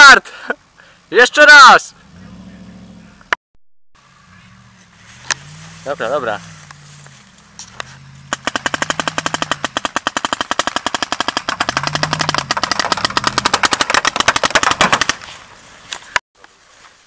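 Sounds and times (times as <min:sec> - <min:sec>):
paintball markers firing rapidly: 0:08.3 - 0:15.2.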